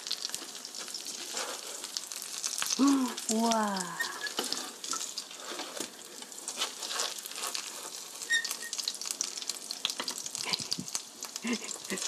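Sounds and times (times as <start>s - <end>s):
meat sizzling in frying pan: 0.0s - 12.0s
spatula scraping pan: 0.2s - 2.4s, 4.0s - 8.8s.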